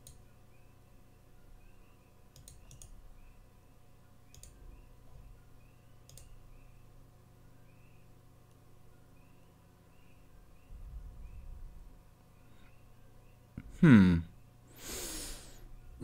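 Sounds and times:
computer mouse clicks: 0.0s - 0.2s, 2.3s - 3.0s, 4.3s - 4.6s, 6.0s - 6.4s
faint electrical hum: 0.0s - 16.0s.

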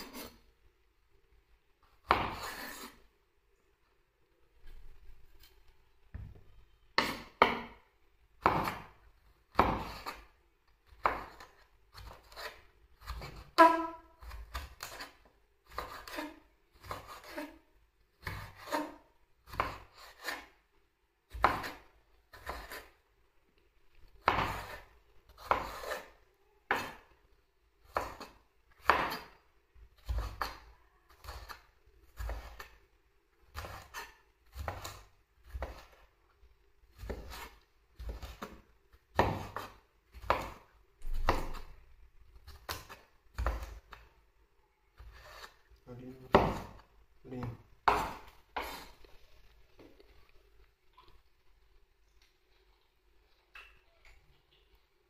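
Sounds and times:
knife cutting food: 24.2s - 27.1s, 30.0s - 32.8s, 33.5s - 36.0s.

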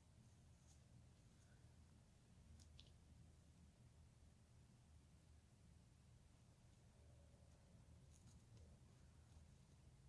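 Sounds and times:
faint room hum: 0.0s - 10.0s
soft clicks of handling yarn: 2.5s - 3.1s, 6.6s - 9.9s.

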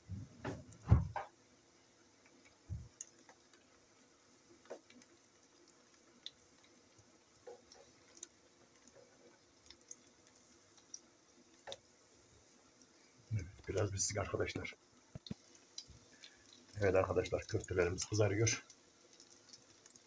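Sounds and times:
oil spattering in frying pan: 17.5s - 20.0s.

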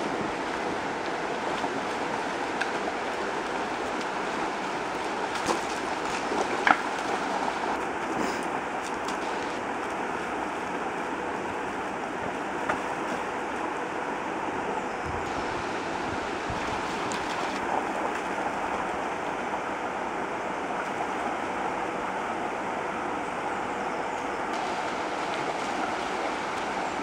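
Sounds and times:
water rushing over stones: 0.0s - 7.9s, 15.2s - 19.2s, 24.5s - 27.0s.

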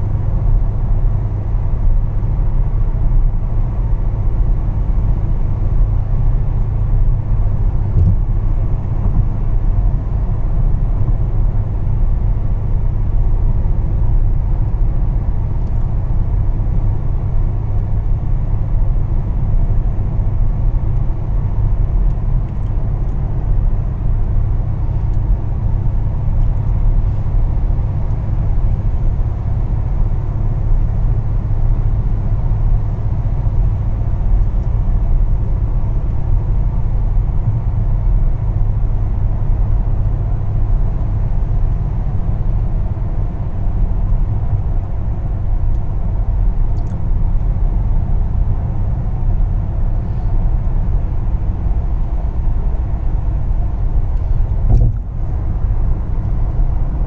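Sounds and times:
car driving rumble: 0.0s - 57.0s.

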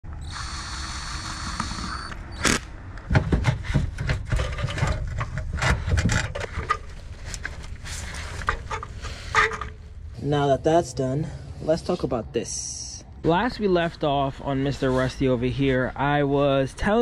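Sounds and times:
cordless drill whirring: 0.2s - 2.6s
parts clanking and scraping: 2.4s - 10.1s.

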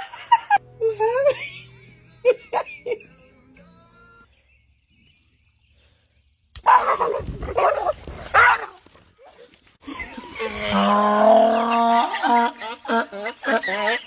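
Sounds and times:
dog barking loudly: 6.6s - 8.8s.

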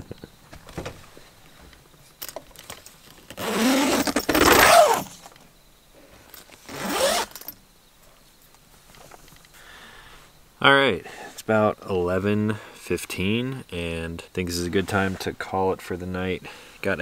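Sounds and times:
zipper pulled: 3.4s - 5.2s, 6.6s - 7.5s.

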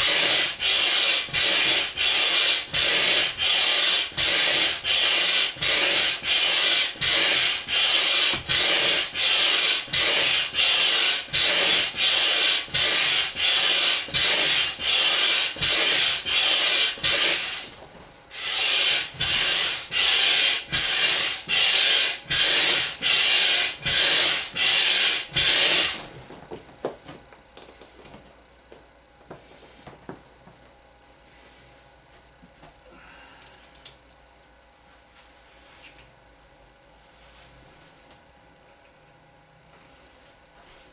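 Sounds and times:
hand air pump hissing: 0.0s - 26.2s.

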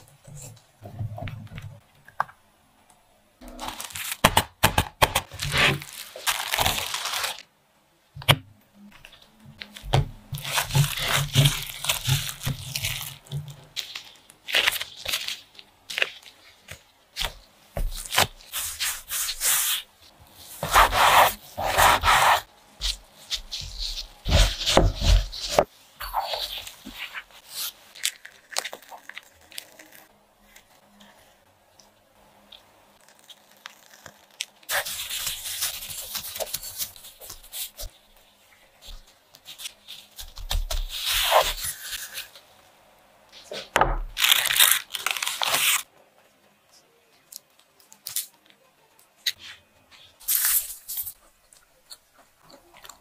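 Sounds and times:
plastic gloves crinkling: 3.4s - 7.6s, 8.9s - 31.4s, 32.5s - 45.9s, 49.2s - 53.0s
hands working sticky dough: 8.2s - 31.9s, 32.5s - 45.9s.

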